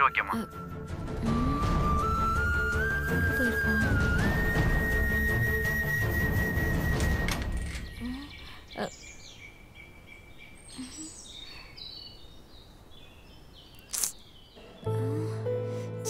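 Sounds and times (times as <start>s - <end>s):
birds chirping: 0.0s - 0.4s, 6.7s - 15.3s
outdoor background noise: 4.2s - 15.0s.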